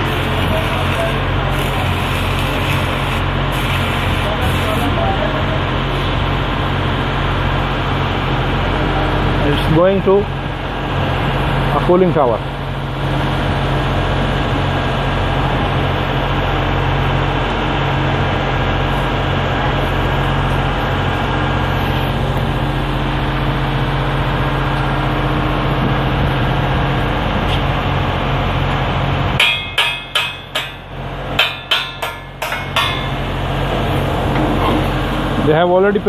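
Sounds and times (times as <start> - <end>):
machinery hum: 0.0 - 36.0
hammer blows on metal: 29.4 - 33.4.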